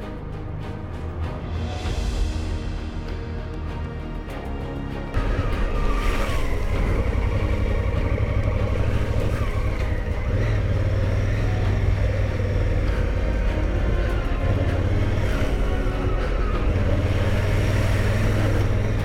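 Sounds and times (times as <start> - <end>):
background music: 0.0 - 19.0
wind and riding noise: 4.0 - 19.0
motorcycle engine running: 5.2 - 19.0.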